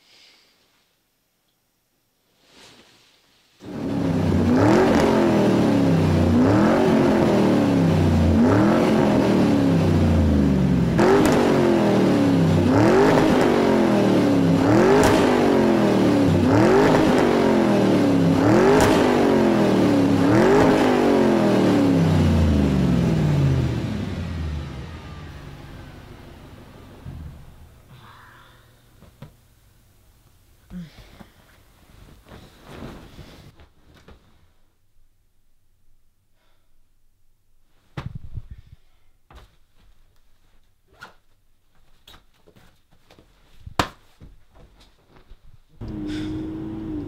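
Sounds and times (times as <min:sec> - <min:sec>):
car engine revving: 0:03.6 - 0:27.9, 0:45.8 - 0:47.0.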